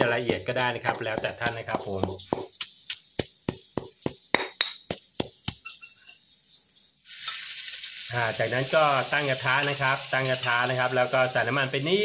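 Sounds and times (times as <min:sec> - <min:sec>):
pestle pounding in a mortar: 0:00.0 - 0:05.7
oil sizzling in a wok: 0:00.0 - 0:12.0.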